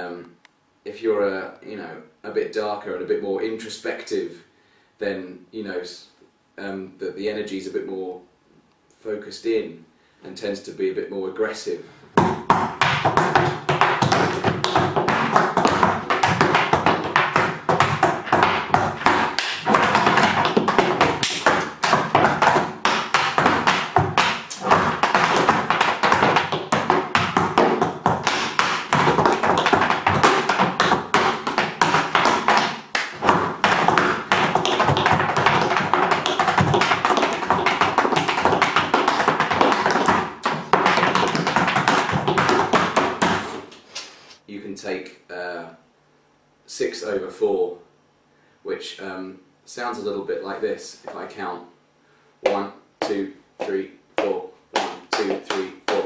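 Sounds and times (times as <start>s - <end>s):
tap shoes on wooden board: 12.2s - 43.8s, 52.4s - 56.0s.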